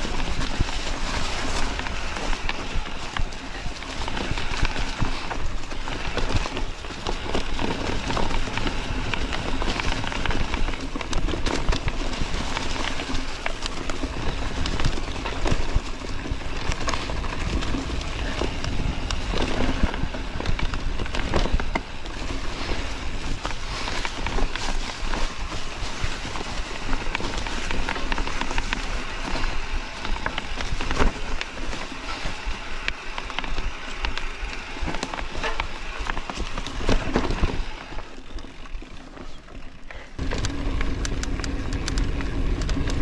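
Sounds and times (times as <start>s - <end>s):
bike tyres rolling over gravel: 0.0s - 43.0s
steady low rumble: 40.0s - 43.0s.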